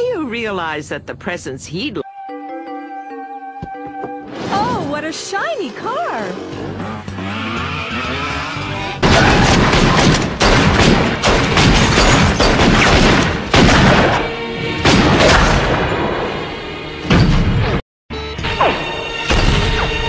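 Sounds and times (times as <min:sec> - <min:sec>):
music: 0:01.9 - 0:09.0, 0:13.5 - 0:20.0
loud booms: 0:09.0 - 0:16.3.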